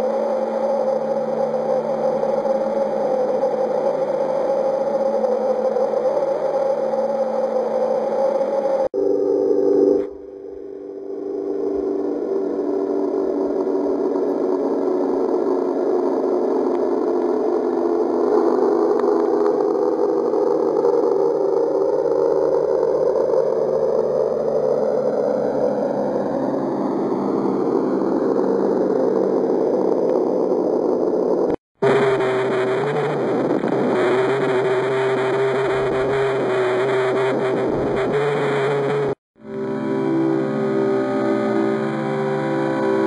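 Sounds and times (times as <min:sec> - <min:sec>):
deep electronic hum: 0:00.0 - 0:43.0.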